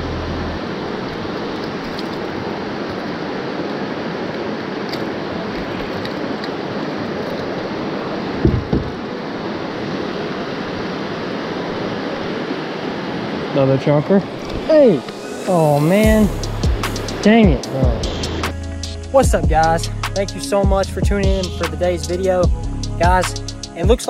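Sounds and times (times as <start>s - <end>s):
river water rushing over rocks: 0.6s - 16.2s
low thump: 8.4s - 9.0s.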